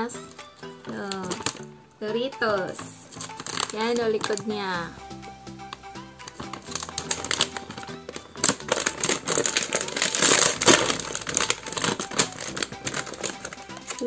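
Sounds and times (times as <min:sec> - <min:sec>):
foil bag crinkling: 0:00.2 - 0:01.7, 0:02.8 - 0:04.8, 0:05.7 - 0:14.0.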